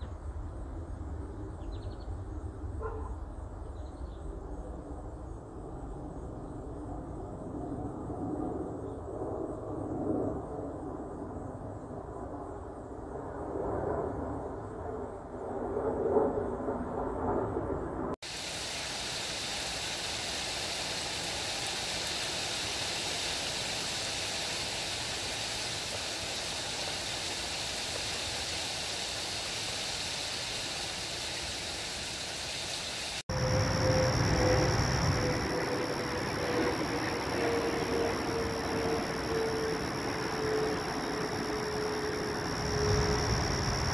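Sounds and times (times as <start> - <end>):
cicadas singing: 18.2 - 43.9
road traffic noise: 18.2 - 43.9
steady even hiss: 18.2 - 43.9.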